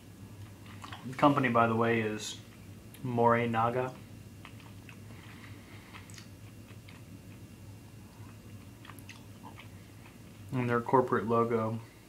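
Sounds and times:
low steady hum: 0.0 - 12.0
soft chewing: 0.3 - 1.5, 2.4 - 3.1, 3.9 - 10.8.

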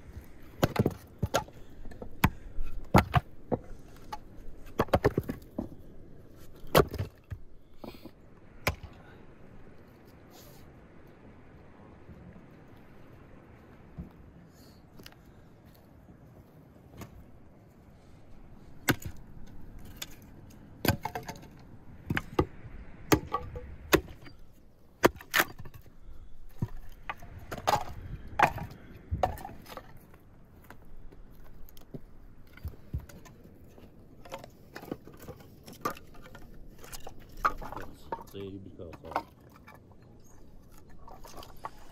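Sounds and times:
axe chopping wood: 0.6 - 5.4, 6.6 - 7.4, 8.6 - 9.0, 18.8 - 19.2, 22.1 - 24.3, 25.0 - 25.8
wood pieces knocking together: 0.6 - 5.8, 26.5 - 30.0, 34.2 - 40.0.

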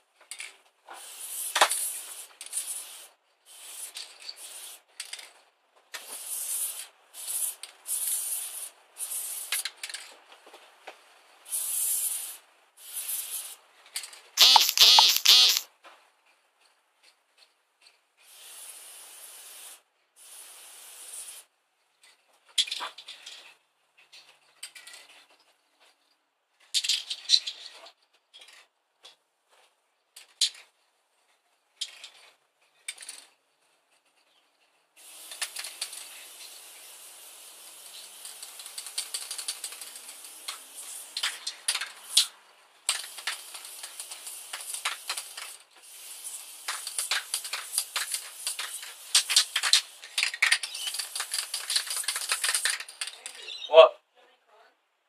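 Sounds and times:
spray can mixing ball rattling: 0.3 - 5.3, 14.4 - 15.6, 35.0 - 42.3, 42.9 - 53.4
spray paint can hissing: 1.0 - 4.8, 6.0 - 9.7, 11.5 - 13.6, 14.4 - 15.6, 18.2 - 21.5, 35.0 - 42.3, 42.9 - 53.1.

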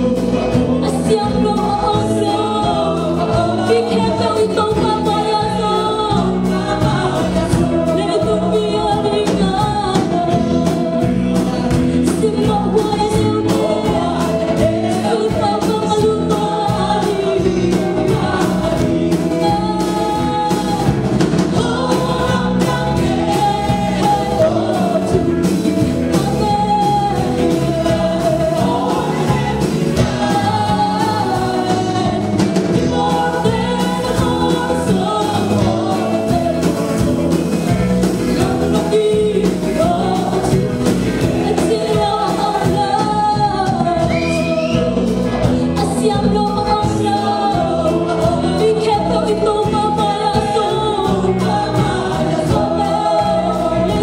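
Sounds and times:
gospel band playing: 0.0 - 54.0
people singing worship song: 0.0 - 54.0.

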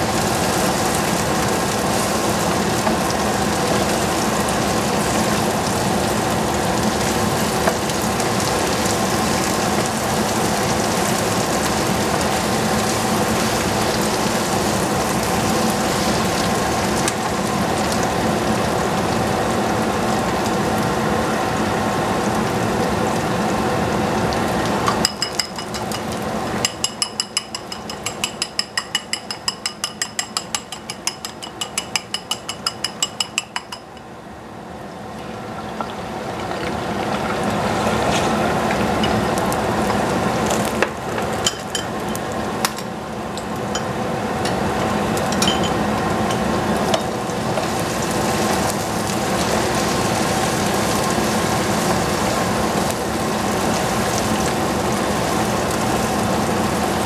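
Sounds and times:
egg sizzling in hot oil: 24.4 - 34.1
chopsticks beating eggs in bowl: 26.8 - 33.8.

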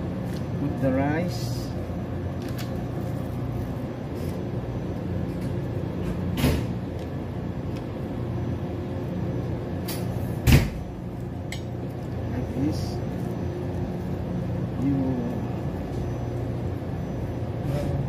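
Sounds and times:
low background hum: 0.0 - 18.0.

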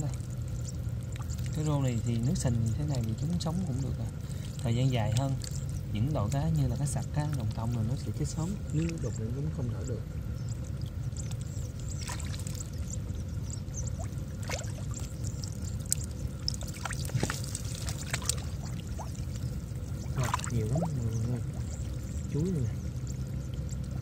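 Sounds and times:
water splashes and drips: 0.0 - 9.1, 10.6 - 12.9, 13.8 - 24.0
low hum: 0.0 - 24.0
hands sloshing in muddy water: 11.3 - 12.7, 14.0 - 24.0.

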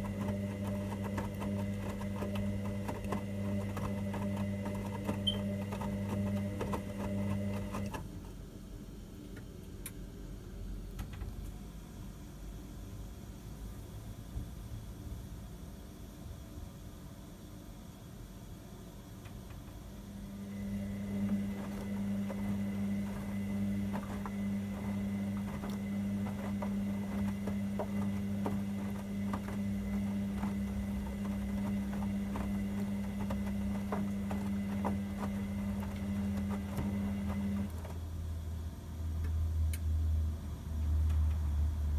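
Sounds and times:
washing machine motor hum: 0.0 - 41.9
laundry and water sloshing: 20.6 - 38.0.

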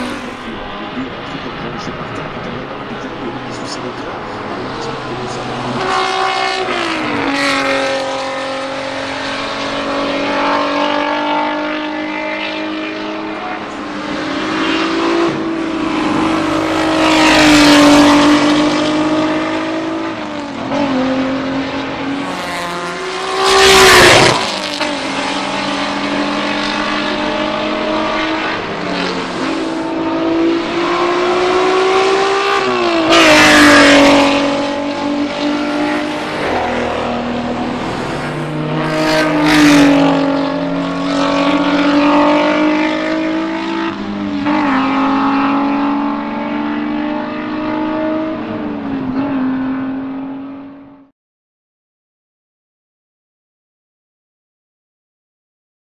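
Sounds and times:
race car engine at speed: 0.0 - 51.1
race car passing close by: 0.0 - 51.1.

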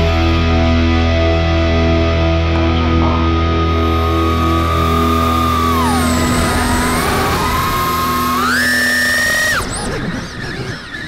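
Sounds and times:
model plane motor whining: 3.7 - 11.0.

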